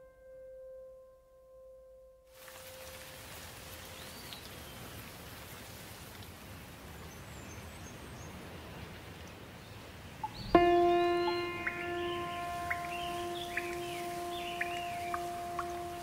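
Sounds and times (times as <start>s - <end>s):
rain hiss: 2.3s - 16.0s
faint bird chirps: 10.2s - 16.0s
loud struck musical chord: 10.5s - 16.0s.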